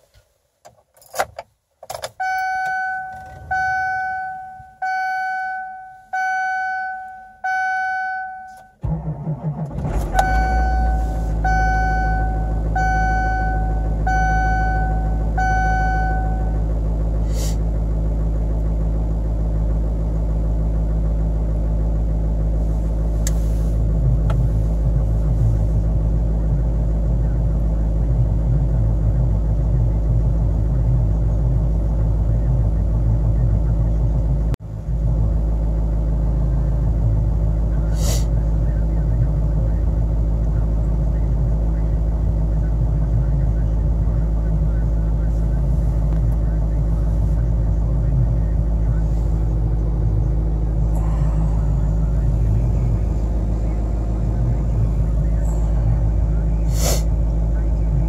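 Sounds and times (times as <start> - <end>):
diesel engine cranking and idling: 0.9 - 58.0
dashboard warning chime: 2.1 - 8.8, 10.1 - 16.6.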